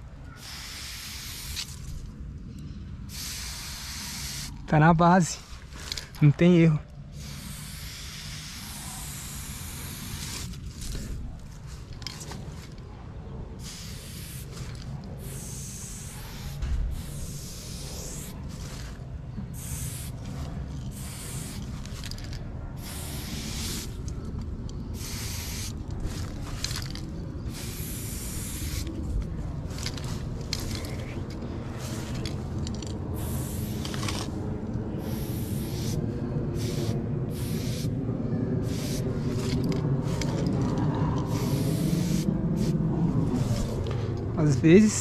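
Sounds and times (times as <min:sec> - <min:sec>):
low background rumble: 0:00.0 - 0:45.0
spray paint hissing bursts: 0:00.4 - 0:01.9, 0:03.1 - 0:04.6, 0:07.1 - 0:10.6, 0:13.6 - 0:18.9, 0:19.5 - 0:24.1, 0:24.9 - 0:26.9, 0:27.5 - 0:29.0, 0:31.8 - 0:32.4, 0:33.2 - 0:34.4, 0:35.0 - 0:38.0, 0:38.6 - 0:40.5, 0:41.3 - 0:42.8.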